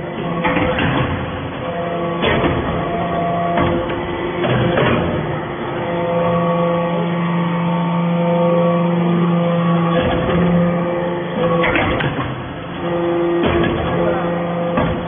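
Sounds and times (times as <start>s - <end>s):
hydraulic press hum: 0.0s - 15.0s
sharp metal knocks: 2.1s - 5.3s.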